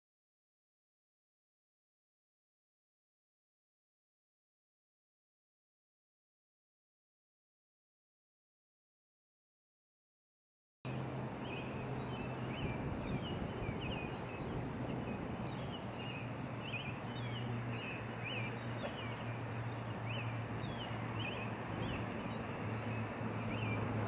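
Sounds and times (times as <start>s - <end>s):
small birds chirping: 10.9s - 24.0s
steady rushing noise: 10.9s - 24.0s.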